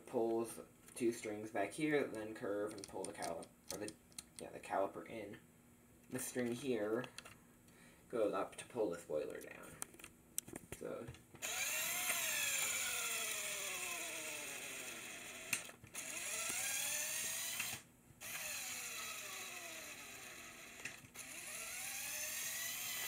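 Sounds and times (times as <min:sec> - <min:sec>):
toy motor whirring through gears: 0:11.4 - 0:23.0.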